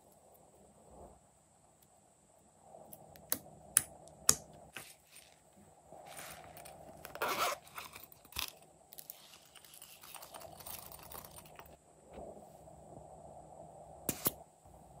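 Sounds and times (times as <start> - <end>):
soft rustling and scraping: 4.7 - 12.8
zipper rasp: 6.1 - 8.1.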